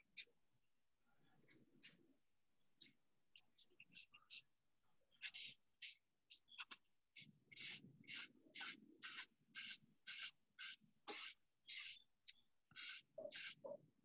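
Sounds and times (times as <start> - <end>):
paintbrush swishing on wood: 7.6 - 12.0, 12.7 - 13.6.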